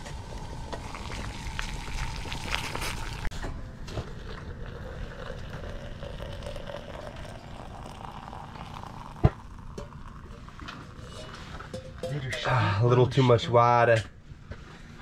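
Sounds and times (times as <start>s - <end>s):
water pouring into metal mug: 0.1s - 3.3s, 4.0s - 11.1s.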